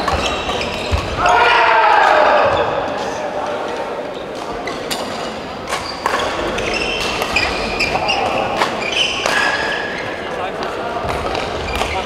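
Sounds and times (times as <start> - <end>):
shoes squeaking on court floor: 0.0 - 1.3, 4.1 - 12.0
racket hitting shuttlecock: 8.6 - 9.8.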